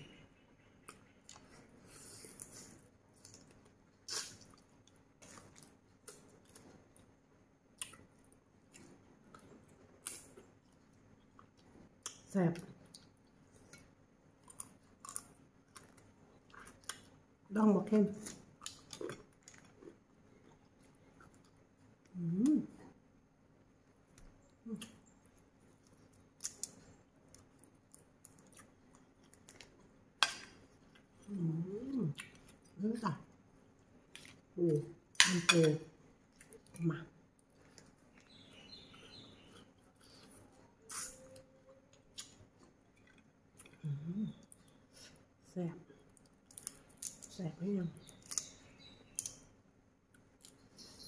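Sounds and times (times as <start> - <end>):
soft chewing and wet sucking: 0.6 - 17.2, 18.2 - 22.1, 36.2 - 47.3.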